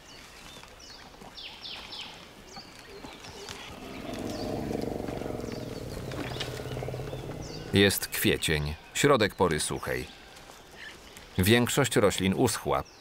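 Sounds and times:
birds chirping: 1.4s - 11.6s
elephant rumbling: 3.5s - 8.1s.

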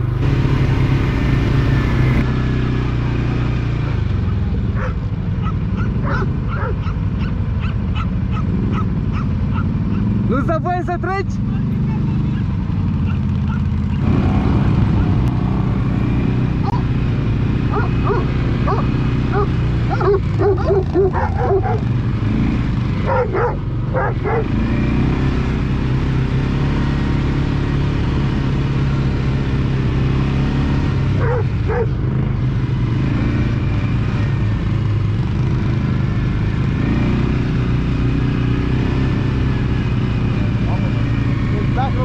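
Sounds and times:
atv engine running: 0.0s - 42.0s
high yelping sounds: 4.8s - 10.2s, 12.2s - 14.2s, 17.7s - 21.9s.

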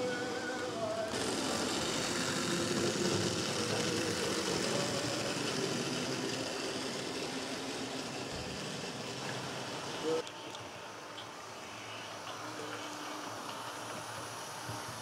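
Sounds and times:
locomotive motors whirring: 0.0s - 10.3s
model train wheels rattling: 1.1s - 10.2s.

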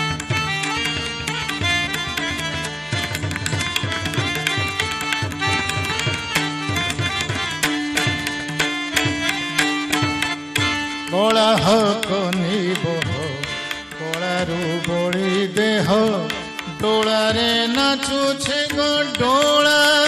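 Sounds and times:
harmonium drone: 0.0s - 20.0s
man singing: 10.9s - 20.0s.

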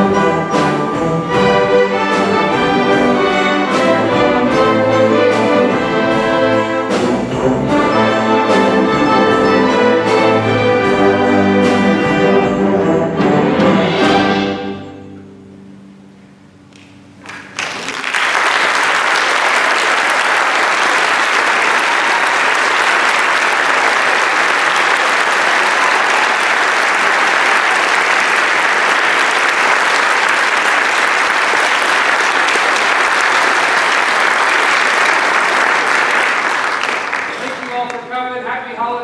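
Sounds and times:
audience applause: 17.2s - 38.1s.

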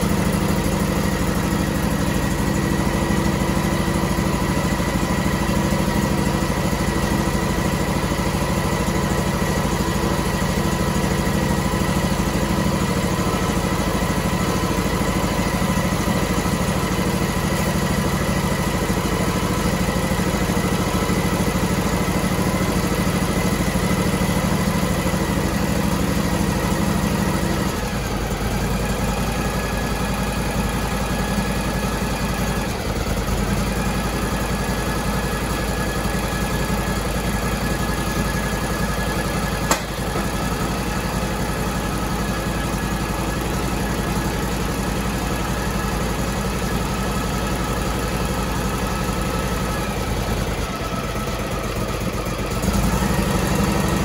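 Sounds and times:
outboard engine running: 35.8s - 54.0s.

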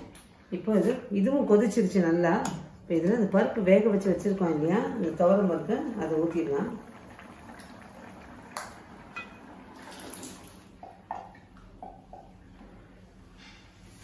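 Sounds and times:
soft wet pouring: 5.6s - 12.3s.

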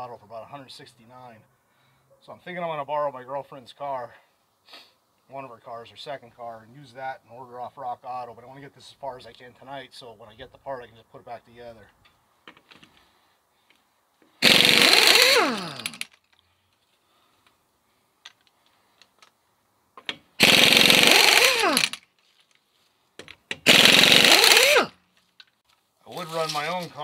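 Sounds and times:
pneumatic impact wrench rattling: 14.3s - 16.3s, 20.0s - 22.2s, 23.3s - 25.5s.

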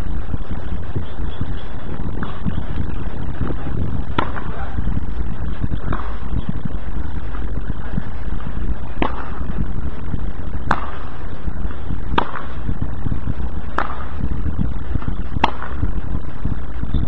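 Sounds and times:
steady low rumble: 0.0s - 17.0s
tennis ball hitting racket: 4.2s - 4.5s.

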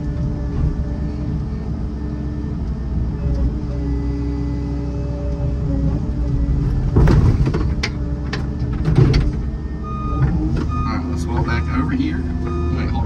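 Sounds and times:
excavator engine running: 0.0s - 13.0s
sharp clunks: 6.7s - 9.5s.

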